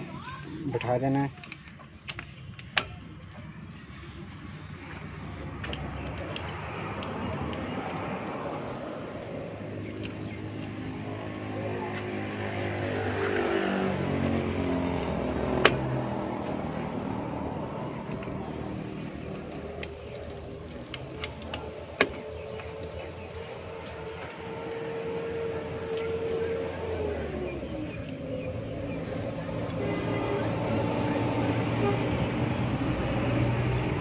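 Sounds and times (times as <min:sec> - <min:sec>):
vehicle engines running: 0:00.0 - 0:34.0
sharp metal clicks: 0:00.8 - 0:03.3.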